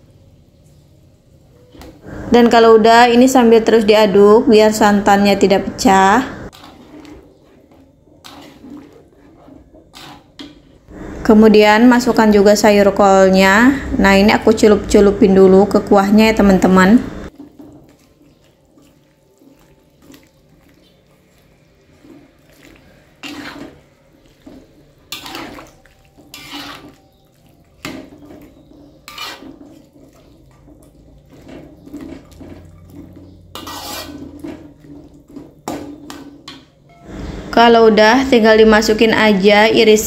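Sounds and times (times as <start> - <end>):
metal spatula scraping a wok: 5.9 - 11.6, 17.3 - 37.6
liquid sloshing: 6.5 - 10.8, 17.3 - 36.5.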